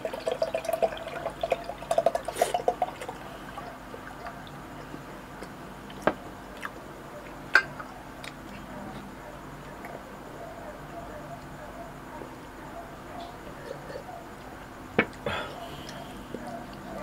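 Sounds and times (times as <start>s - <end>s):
juice glugging into a glass: 0.0s - 5.0s.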